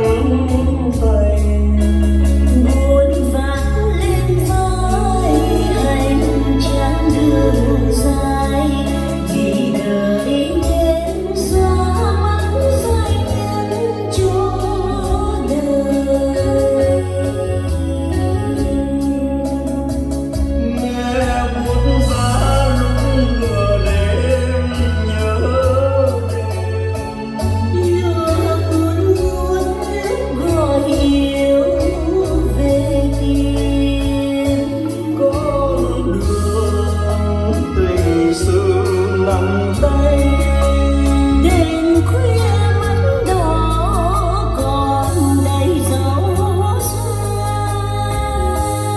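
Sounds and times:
song with vocals over loudspeakers: 0:00.0 - 0:48.9.

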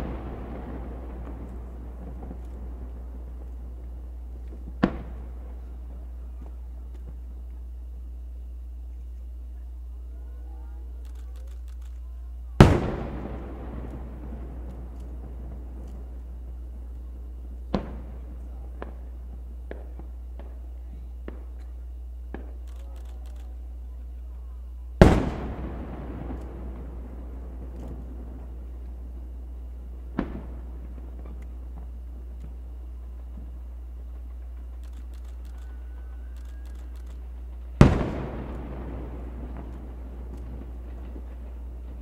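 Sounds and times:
distant fireworks pops: 0:00.0 - 0:09.4, 0:12.6 - 0:23.7, 0:25.0 - 0:42.0
fireworks crackling: 0:00.0 - 0:42.0
steady low hum: 0:00.0 - 0:42.0
faint clicks: 0:11.0 - 0:12.1, 0:22.4 - 0:23.6, 0:34.6 - 0:37.3
thin faint whistle: 0:35.6 - 0:37.0
firework shell bursting boom: 0:37.7 - 0:41.4.

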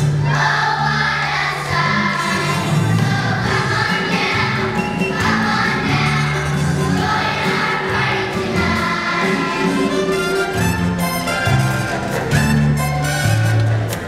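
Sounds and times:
children's choir singing: 0:00.0 - 0:10.6
instrumental accompaniment with bass: 0:00.0 - 0:14.0.

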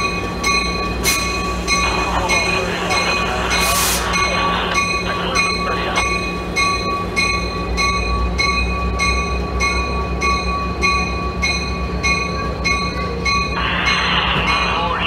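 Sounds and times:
locomotive bell ringing: 0:00.0 - 0:15.0
locomotive engine rumble: 0:00.0 - 0:15.0.

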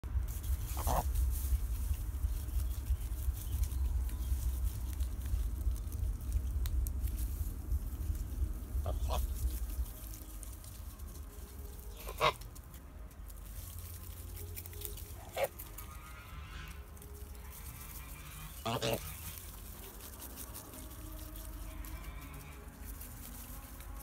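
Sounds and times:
steady low rumble: 0:00.0 - 0:24.0
geese calling: 0:00.6 - 0:01.2, 0:08.8 - 0:10.5, 0:11.1 - 0:12.8, 0:14.1 - 0:24.0.

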